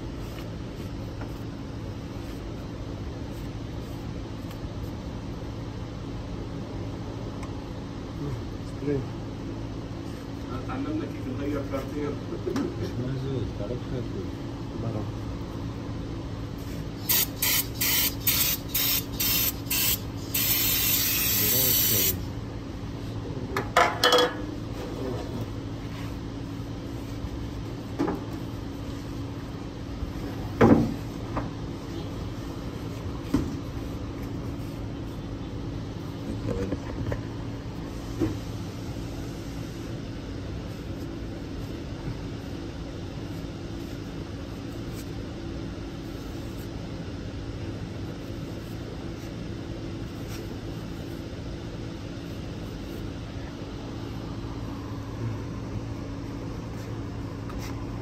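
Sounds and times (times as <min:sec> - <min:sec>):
low steady hum: 0:22.2 - 0:58.0.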